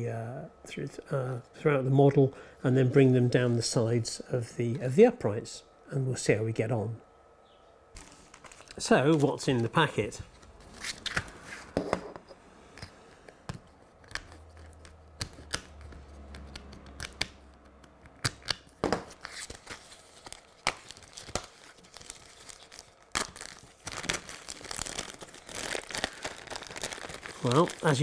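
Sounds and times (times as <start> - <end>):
packaging tearing: 8.0 - 9.7, 18.2 - 28.0
plastic bag crinkling: 8.0 - 11.4, 19.1 - 28.0.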